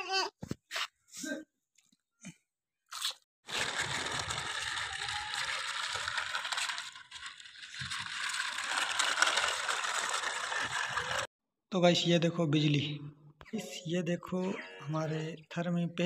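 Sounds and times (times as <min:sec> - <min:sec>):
plastic wheels rattling on hard ground: 0:03.5 - 0:11.3.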